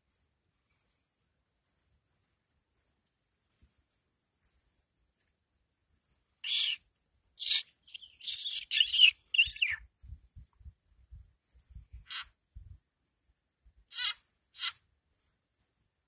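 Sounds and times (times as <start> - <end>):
frog distress screams: 12.1 - 12.3, 13.9 - 14.8.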